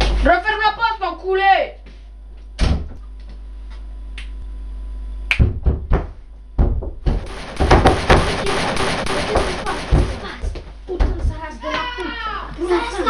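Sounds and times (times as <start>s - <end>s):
steady low hum: 7.1s - 10.6s.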